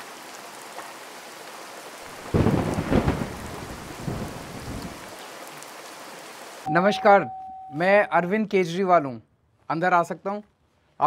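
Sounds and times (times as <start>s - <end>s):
steady rain: 0.0s - 6.7s
thunder rumbling: 2.1s - 5.0s.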